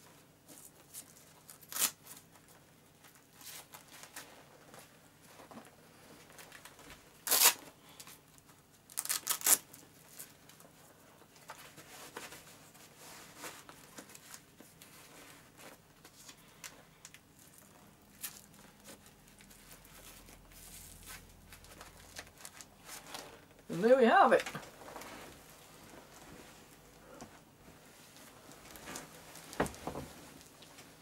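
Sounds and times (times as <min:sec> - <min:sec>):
velcro straps ripping: 0:00.6 - 0:02.2, 0:07.2 - 0:07.7, 0:08.9 - 0:10.3.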